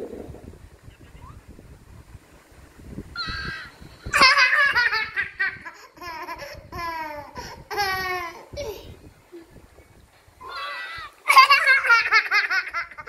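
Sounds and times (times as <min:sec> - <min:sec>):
child squealing: 0:03.2 - 0:03.8, 0:10.4 - 0:11.2
child laughing: 0:03.2 - 0:09.0, 0:10.4 - 0:13.0.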